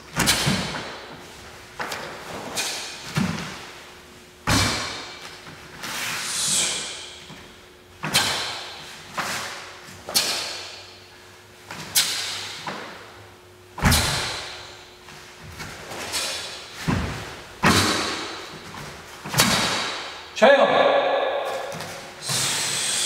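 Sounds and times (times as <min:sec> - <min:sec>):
hissing breath: 0:06.1 - 0:07.1, 0:22.2 - 0:23.0
feet thudding on foam mats: 0:13.8 - 0:20.2.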